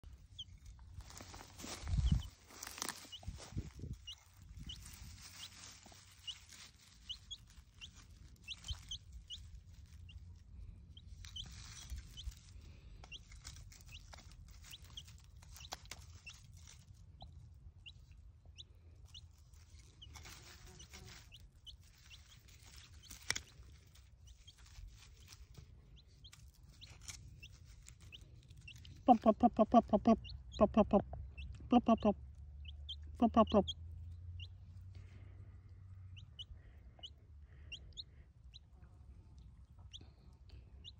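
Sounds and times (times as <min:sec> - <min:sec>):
chick peeping: 0:00.0 - 0:35.3, 0:35.9 - 0:40.9
hand fork scratching soil: 0:19.7 - 0:25.6.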